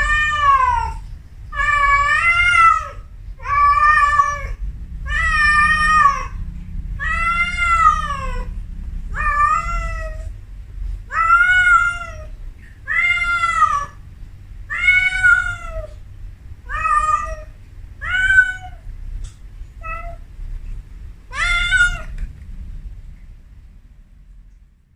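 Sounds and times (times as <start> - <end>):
cat meowing: 0.0 - 6.4, 7.0 - 10.3, 11.1 - 14.0, 14.7 - 16.0, 16.6 - 18.9, 19.8 - 20.2, 21.3 - 22.2.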